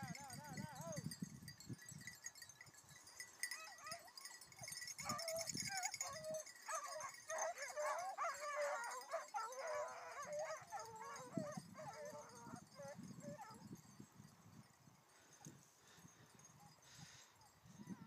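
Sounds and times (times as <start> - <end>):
hounds yelping: 3.2 - 13.7.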